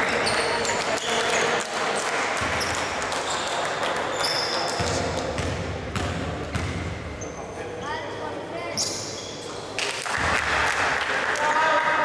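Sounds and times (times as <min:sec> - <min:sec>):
crowd chatter: 0:00.0 - 0:12.0
sneaker squeaks on hardwood: 0:04.1 - 0:04.9, 0:08.8 - 0:09.6
basketball bouncing: 0:04.8 - 0:07.0.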